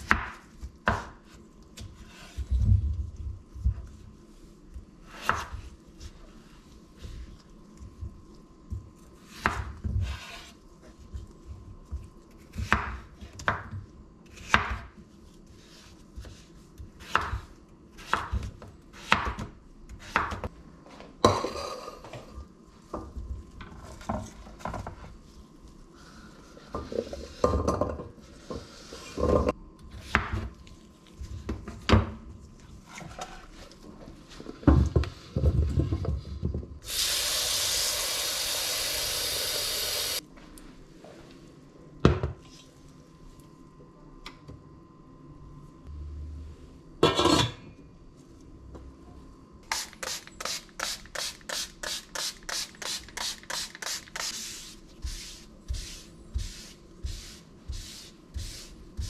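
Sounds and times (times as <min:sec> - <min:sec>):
tap water running into pot: 0:36.9 - 0:40.2.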